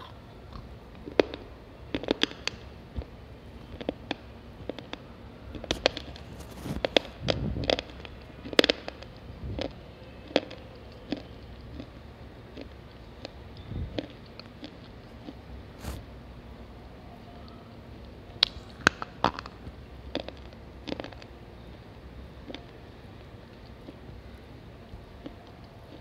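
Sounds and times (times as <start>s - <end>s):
crunching of chewed pencil: 0.0s - 16.1s, 17.3s - 26.0s.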